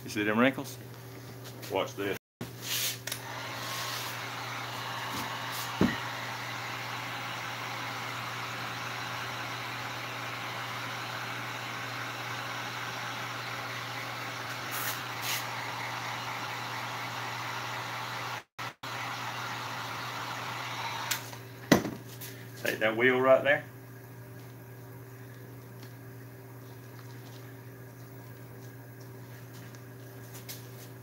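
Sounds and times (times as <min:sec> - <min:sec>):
heat gun blowing: 0:02.5 - 0:21.5.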